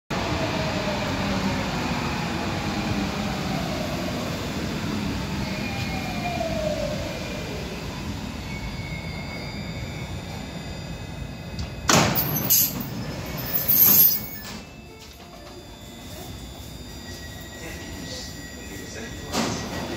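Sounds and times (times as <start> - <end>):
train braking with falling whine: 0.2 - 19.9
train doors sliding open: 11.5 - 16.1, 18.9 - 19.9.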